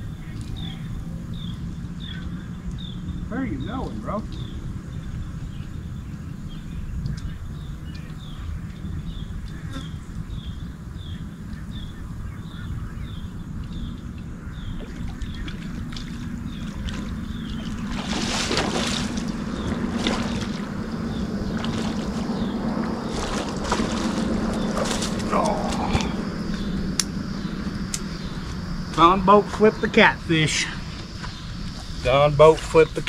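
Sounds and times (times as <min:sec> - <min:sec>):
motorboat engine drone: 0:00.0 - 0:33.0
splashing at water's edge: 0:14.8 - 0:26.2.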